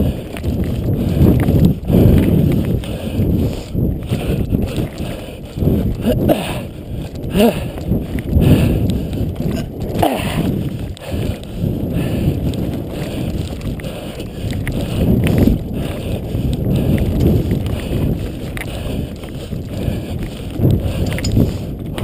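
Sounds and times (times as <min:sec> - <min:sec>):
wind rumbling on microphone: 0:00.0 - 0:22.0
bike rattling and knocking: 0:06.0 - 0:22.0.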